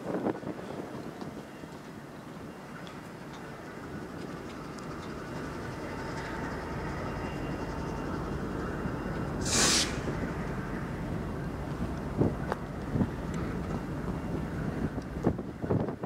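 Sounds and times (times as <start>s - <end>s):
rail yard background noise: 0.0s - 16.0s
sharp hiss of air: 9.4s - 10.1s.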